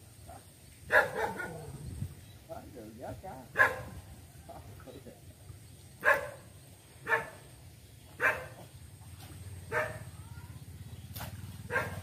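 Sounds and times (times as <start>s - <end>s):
dog barking: 0.9s - 1.7s, 3.6s - 4.0s, 6.0s - 7.4s, 8.2s - 8.6s, 9.7s - 10.1s, 11.7s - 12.0s.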